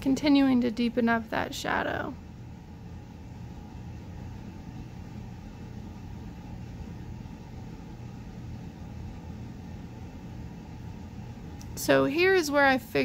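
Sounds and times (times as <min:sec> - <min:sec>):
low hum with faint hiss: 0:00.0 - 0:13.0.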